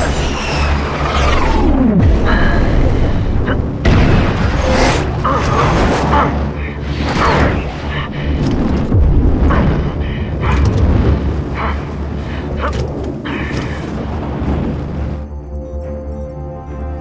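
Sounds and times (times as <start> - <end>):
jet engine rumble: 0.0 - 15.5
music with held tones: 15.2 - 17.0.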